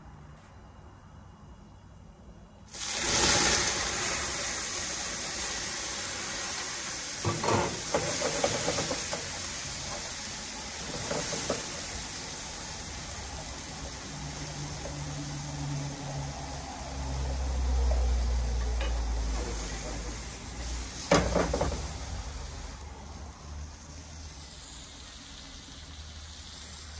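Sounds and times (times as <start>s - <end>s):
meat sizzling in a skillet: 2.7s - 26.9s
spatula scraping a pan: 7.2s - 9.4s.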